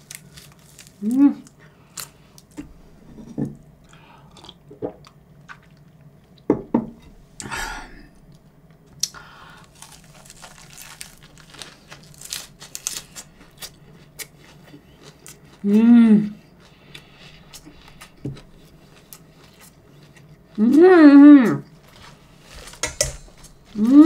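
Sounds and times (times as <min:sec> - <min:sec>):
crunching of fresh lettuce leaves: 0:00.0 - 0:02.6, 0:09.0 - 0:15.8, 0:21.5 - 0:24.0
wet chewing: 0:09.0 - 0:15.7, 0:16.3 - 0:20.8.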